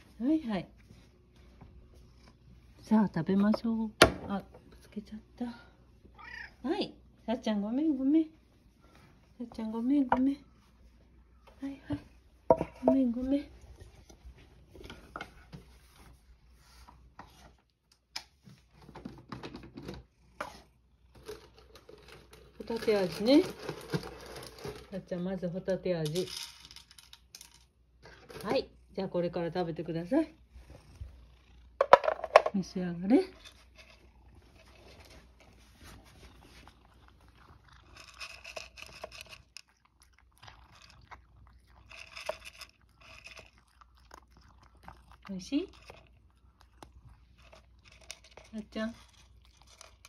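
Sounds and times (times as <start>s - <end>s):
cat crunching dry kibble: 36.3s - 50.0s.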